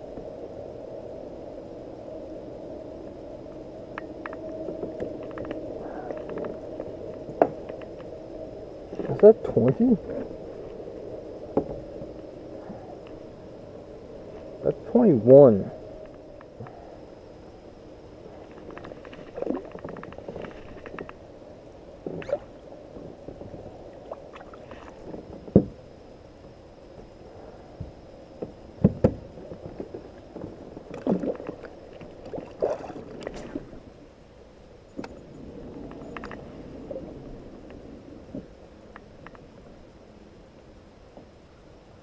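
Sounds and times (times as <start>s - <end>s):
water sloshing and gurgling: 18.2s - 21.3s, 22.0s - 25.8s, 28.8s - 34.0s.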